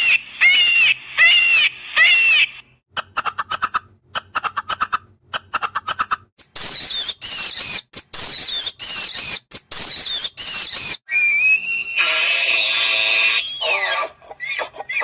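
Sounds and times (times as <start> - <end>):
squirrel chattering sharp chirps: 0.4 - 11.0
viscacha high falling whistles: 9.8 - 12.2
rising animal call: 11.1 - 14.7.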